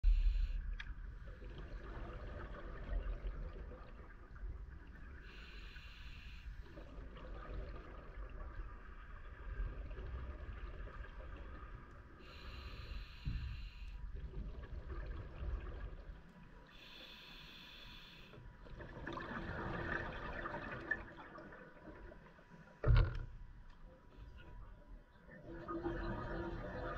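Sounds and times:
regulator hissing inhales: 5.3 - 6.6, 12.2 - 14.0, 16.7 - 18.4.

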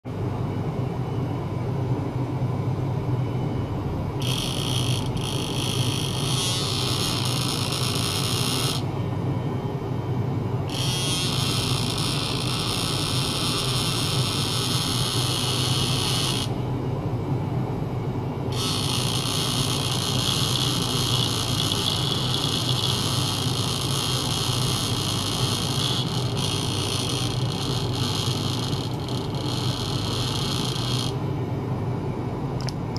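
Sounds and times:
steady low hum: 0.1 - 32.9
electric toothbrush buzzing: 4.2 - 8.9, 10.7 - 16.6, 18.5 - 31.2.

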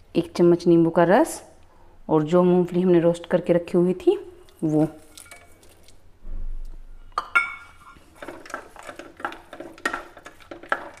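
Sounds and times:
spatula scraping pan: 7.6 - 11.0.

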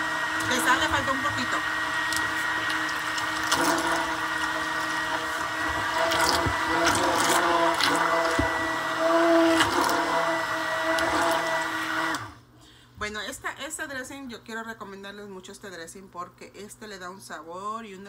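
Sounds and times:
immersion blender humming and whining: 0.0 - 12.4.

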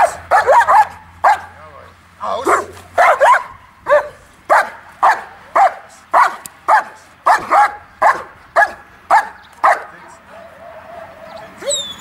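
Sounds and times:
dog barking: 0.0 - 1.6, 2.4 - 10.0.

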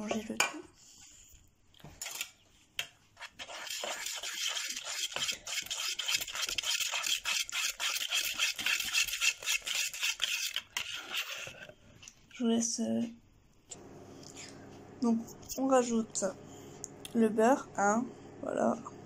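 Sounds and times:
whisk scratching in plastic jug: 3.2 - 12.4.

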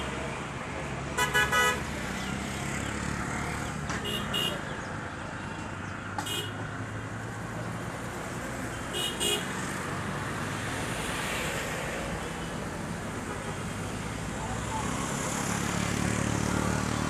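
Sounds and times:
city road traffic hum: 0.0 - 17.0
vehicle horn toots: 1.2 - 1.8, 4.0 - 4.6.

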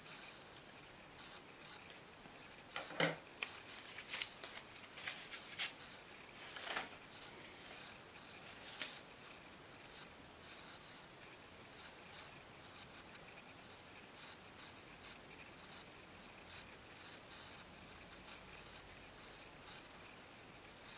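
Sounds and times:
paper rustling and crinkling: 2.8 - 7.8, 8.4 - 9.0.

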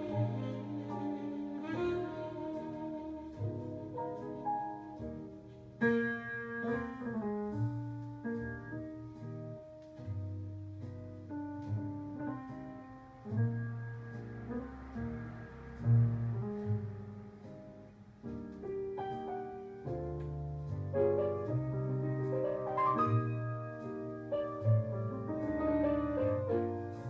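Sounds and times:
saxophone mood music on vinyl: 0.0 - 9.2.

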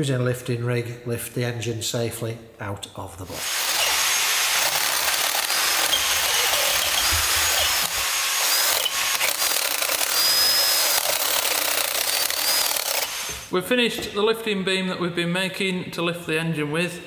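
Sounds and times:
cordless drill boring through steel: 3.4 - 13.5.

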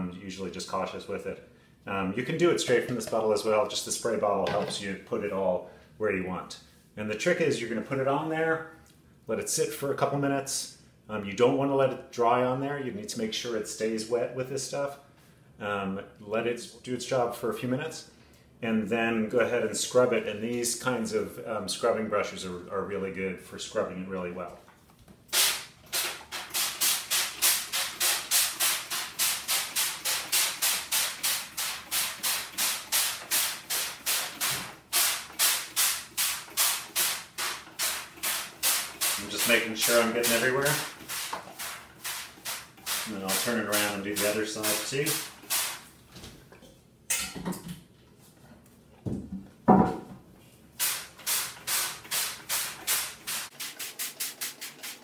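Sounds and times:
spray bottle squirting: 25.3 - 45.9, 50.8 - 55.0
knocks of frame being handled: 49.0 - 50.2.

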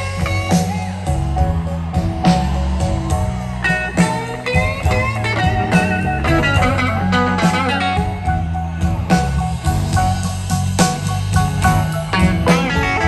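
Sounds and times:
live blues band: 0.0 - 13.0
electric guitar lead lines: 3.7 - 8.4.

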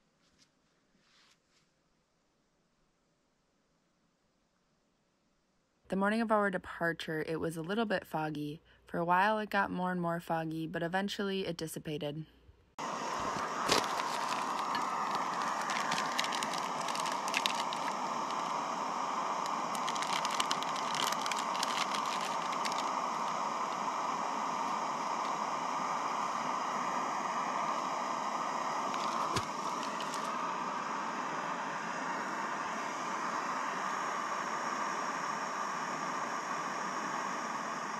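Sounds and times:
camp stove roaring: 12.8 - 37.9
water boiling in pot: 12.8 - 37.9.

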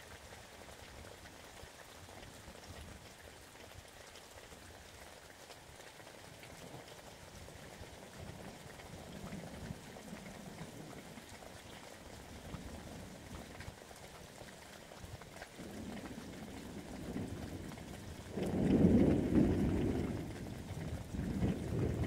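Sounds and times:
steady rain: 0.0 - 22.0
thunder rumbling: 15.6 - 22.0.

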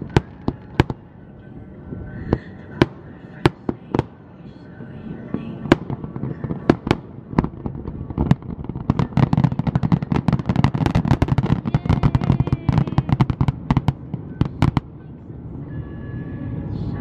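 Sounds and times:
fireworks crackling: 5.3 - 15.0.

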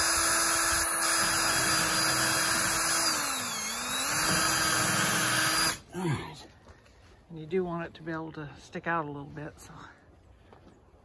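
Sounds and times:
cordless drill boring into wood: 0.0 - 5.8.

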